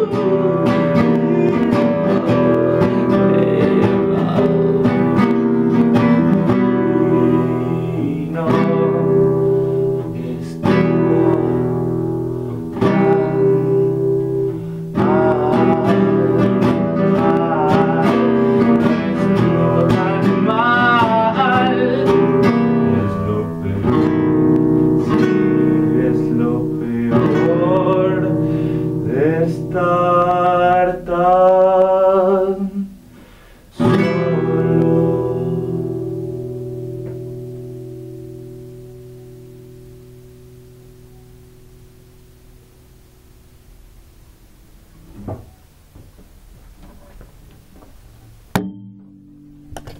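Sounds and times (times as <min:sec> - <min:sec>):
man singing: 0:00.0 - 0:33.1, 0:33.7 - 0:36.8
acoustic guitar strumming: 0:00.0 - 0:49.9.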